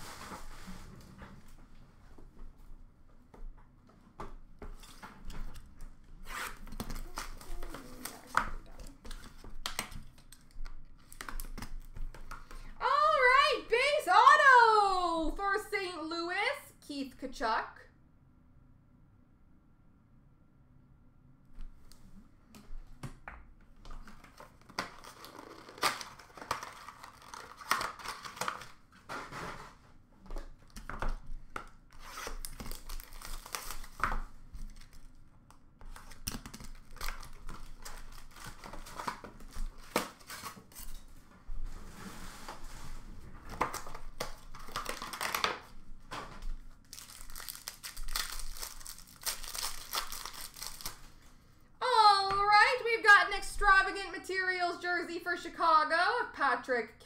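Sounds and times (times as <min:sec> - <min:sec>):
wrappers torn and crinkled: 0:06.2 - 0:09.0, 0:24.2 - 0:28.9, 0:31.9 - 0:35.2, 0:35.9 - 0:41.0, 0:43.6 - 0:45.8, 0:46.6 - 0:51.2.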